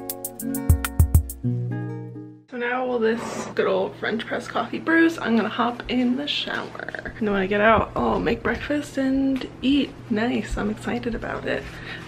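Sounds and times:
steady drum beat: 0.0s - 1.4s
guitar music: 0.0s - 2.5s.

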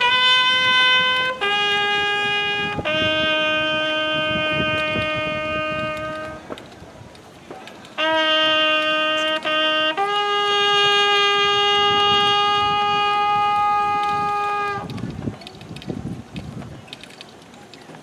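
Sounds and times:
horn sounding a call: 0.0s - 6.4s, 8.0s - 14.9s.

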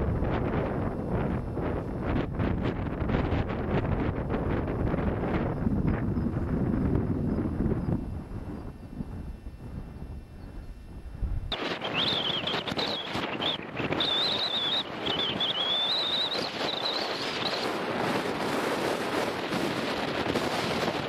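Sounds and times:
wind buffeting microphone: 0.0s - 21.0s
thin wavering high whistle: 7.2s - 17.8s.

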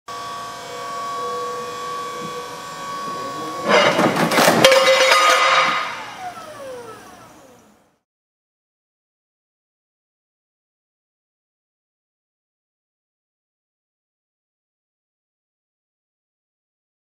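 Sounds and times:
falling whine: 0.1s - 8.0s
truck reversing whine: 0.1s - 8.1s
loud metal crash: 2.9s - 6.4s.

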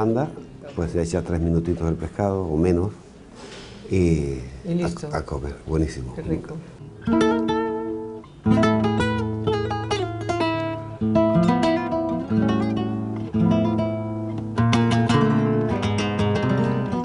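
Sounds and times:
acoustic guitar strumming: 6.8s - 17.0s.

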